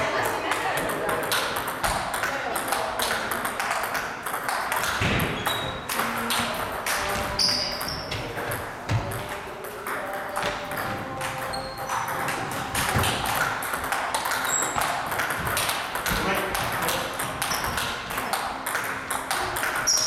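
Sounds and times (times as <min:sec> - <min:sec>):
table tennis ball clicking: 0:00.5 - 0:20.0.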